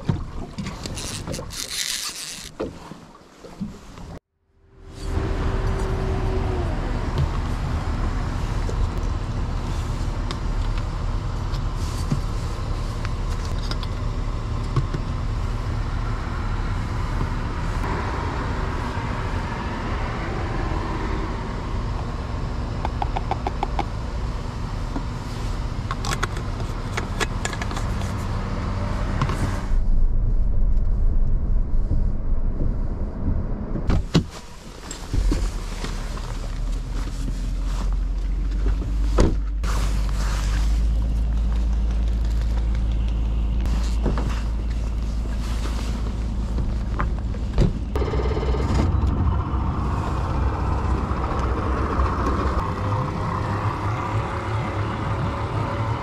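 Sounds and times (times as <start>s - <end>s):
water noise: 0.0s - 37.7s, 42.6s - 56.0s
wind: 0.0s - 56.0s
outboard motor running: 41.6s - 56.0s.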